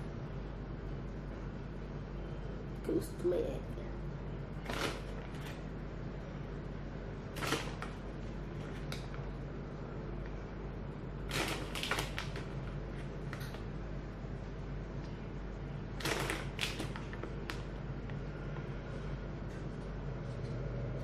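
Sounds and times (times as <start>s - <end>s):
steady low hum: 0.0s - 21.0s
plastic bag crinkling: 11.3s - 13.6s, 16.0s - 17.7s.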